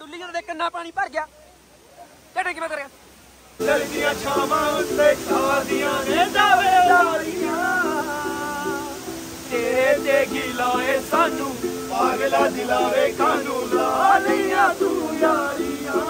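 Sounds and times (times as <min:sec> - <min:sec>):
men singing loudly: 0:03.6 - 0:16.0
ukulele strumming: 0:03.6 - 0:16.0.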